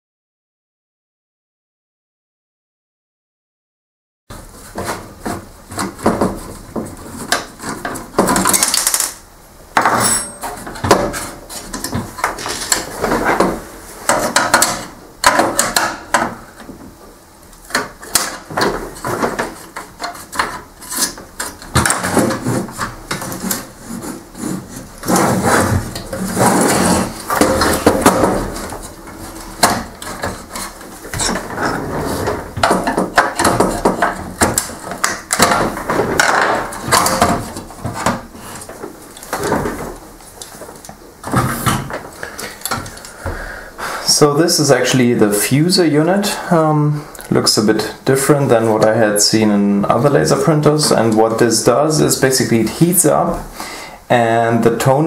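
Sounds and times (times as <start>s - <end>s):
plastic parts clicking and rattling: 5.7s - 9.2s, 32.4s - 43.1s
scraping rubs: 18.9s - 32.6s.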